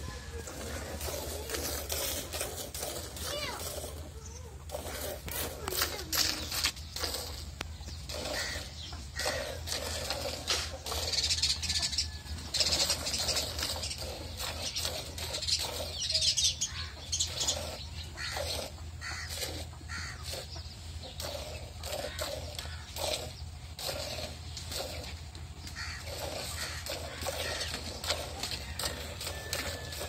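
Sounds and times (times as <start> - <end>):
birds chirping: 0.0 - 30.0
milk squirting into bucket: 4.7 - 11.2, 21.1 - 30.0.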